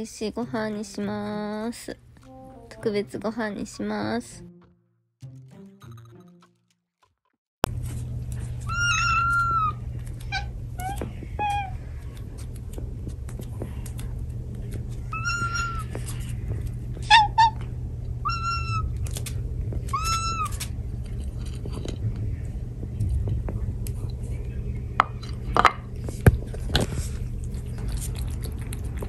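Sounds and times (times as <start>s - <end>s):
steady low hum: 7.6s - 29.0s
cats meowing: 8.6s - 12.0s, 15.1s - 16.3s, 17.0s - 19.2s, 19.8s - 20.8s.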